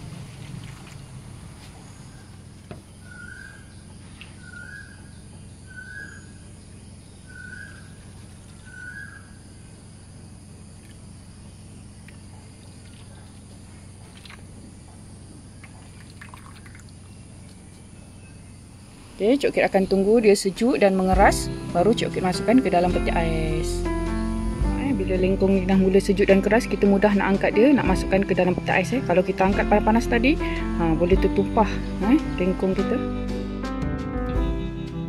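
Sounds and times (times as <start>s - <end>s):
steady low hum: 0.0s - 33.7s
bird chirping: 0.8s - 10.2s.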